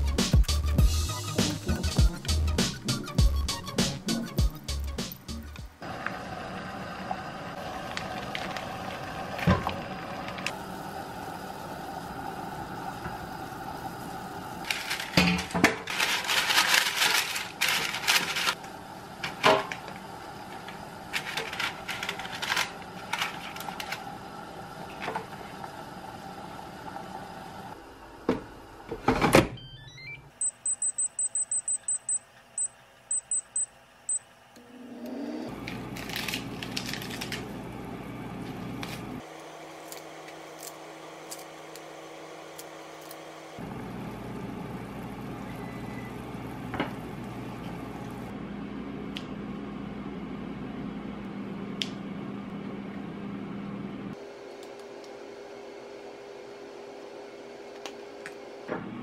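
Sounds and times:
air fryer fan whirring: 5.6 - 59.0
parchment paper rustling: 14.6 - 18.7, 21.1 - 24.1, 35.6 - 37.6
high beeps: 29.6 - 34.2.

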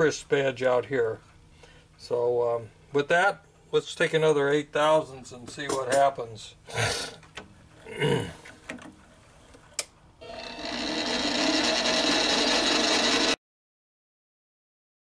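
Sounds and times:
lathe motor whine: 10.2 - 13.4.

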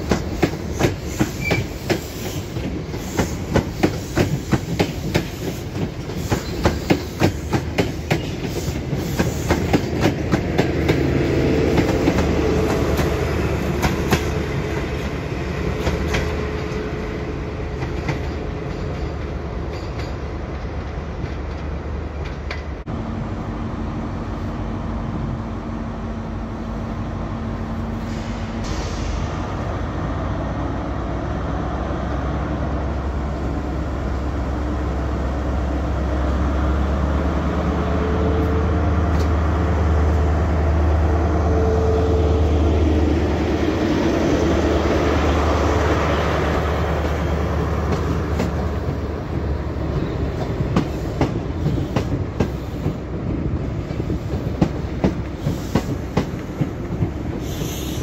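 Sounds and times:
train wheels clicking over rail joints: 0.0 - 15.1, 45.9 - 58.0.

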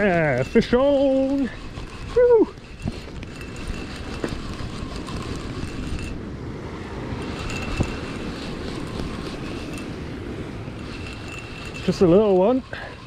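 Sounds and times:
wind rumbling on microphone: 0.0 - 13.0
faint high whine: 10.7 - 13.0.

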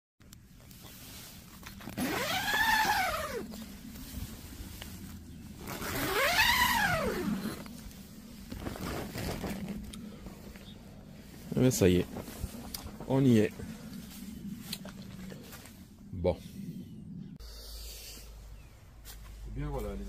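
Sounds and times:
zipper being pulled: 1.8 - 3.6, 5.6 - 10.0.

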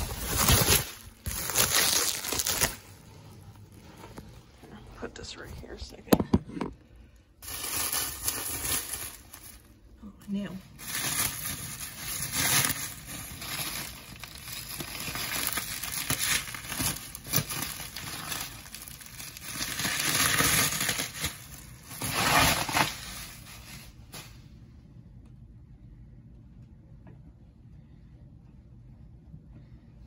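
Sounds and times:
bubble wrap crinkling: 0.0 - 4.7, 7.4 - 24.5.

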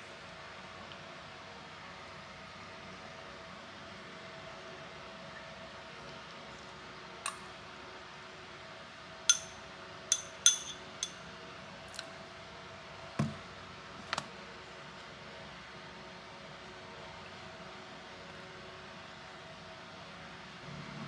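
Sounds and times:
faint steady hum: 0.0 - 21.0
metal spoon clinking on ceramic bowl: 9.3 - 11.3.

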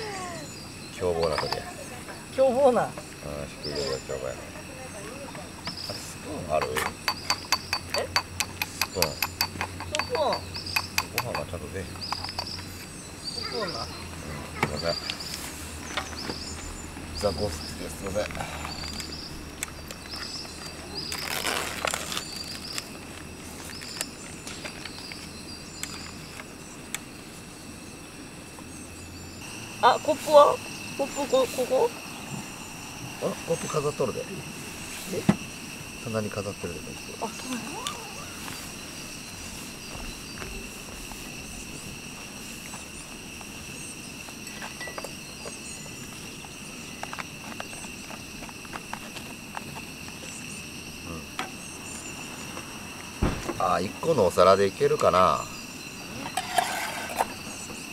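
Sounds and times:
metal spoon scraping a pot: 56.3 - 57.2.

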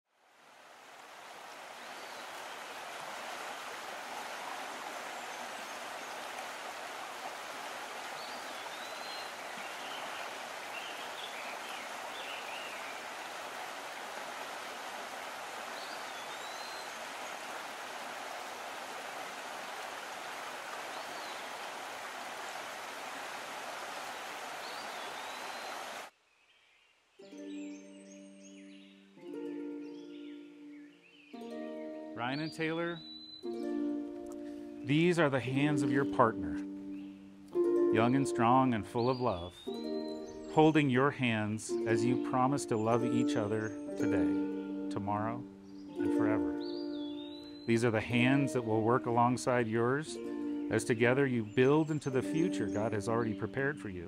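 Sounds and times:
creek water rushing: 0.1 - 26.1, 31.4 - 53.8
bird chirps: 8.2 - 13.0, 15.8 - 17.4, 24.6 - 25.8, 32.2 - 33.7, 37.9 - 44.5, 45.5 - 48.4
bird whistling: 32.4 - 33.6, 46.6 - 47.8.

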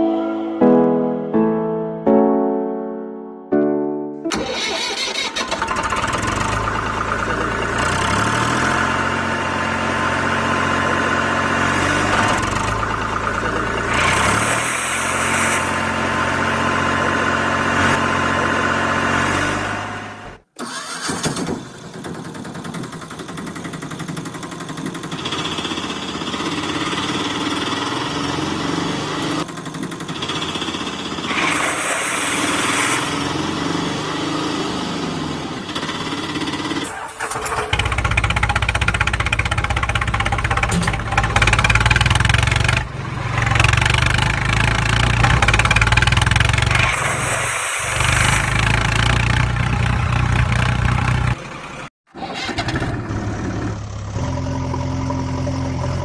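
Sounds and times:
tractor engine revving: 4.2 - 56.0.

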